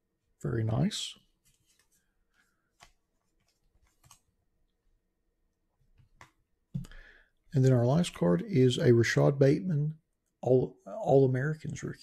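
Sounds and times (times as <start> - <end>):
trading cards clicking and rustling: 2.7 - 4.3.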